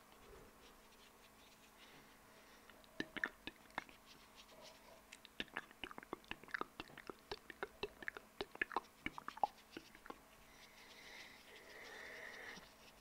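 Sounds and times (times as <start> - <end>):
wet lip and tongue clicks: 2.7 - 4.0, 5.1 - 10.2.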